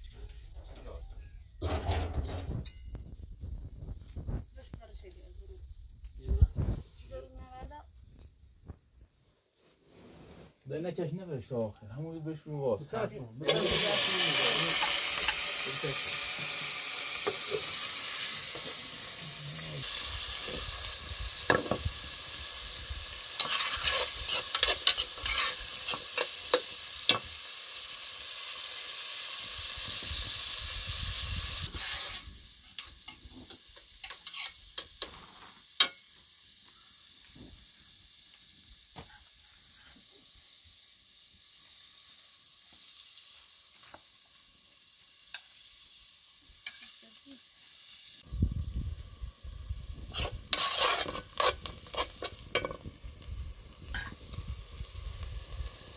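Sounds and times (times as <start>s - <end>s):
bread hissing over wood fire: 1.6s - 55.9s
sharp fire pops: 5.9s - 6.9s, 19.9s - 27.4s.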